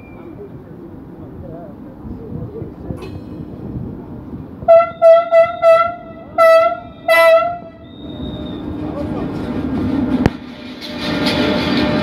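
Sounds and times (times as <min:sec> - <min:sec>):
train rumbling past: 0:00.0 - 0:12.0
train horn blasts: 0:04.7 - 0:08.2.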